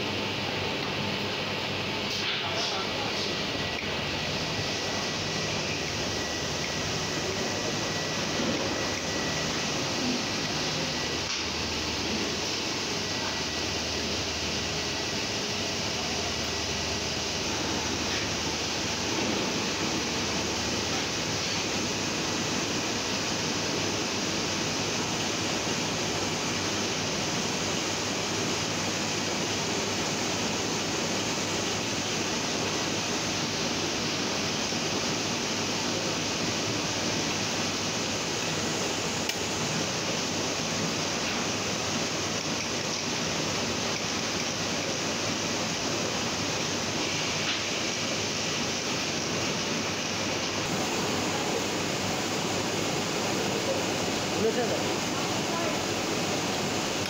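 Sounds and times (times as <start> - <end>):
printing press running: 0.0 - 57.0.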